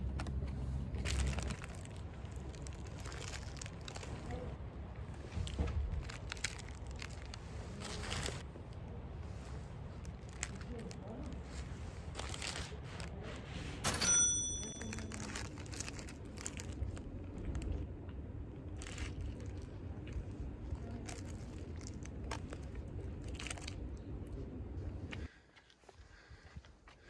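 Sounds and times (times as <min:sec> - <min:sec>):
steady low rumble: 0:00.0 - 0:13.8, 0:14.7 - 0:25.4
paper wrapper crinkling: 0:01.0 - 0:04.4, 0:05.4 - 0:08.4, 0:14.8 - 0:17.7.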